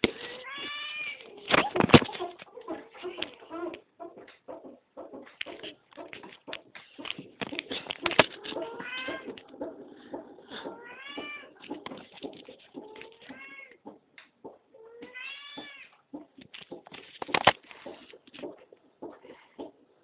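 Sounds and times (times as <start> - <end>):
cat meowing: 8.6 - 9.3, 14.9 - 15.9.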